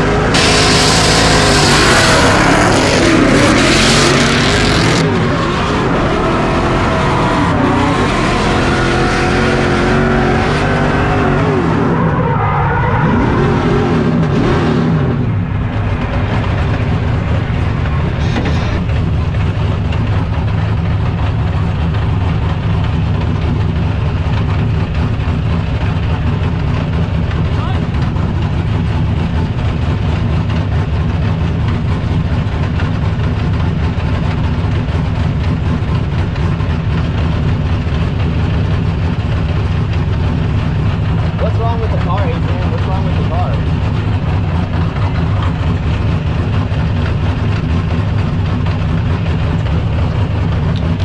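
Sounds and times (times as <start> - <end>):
car engine revving hard: 0.0 - 12.2.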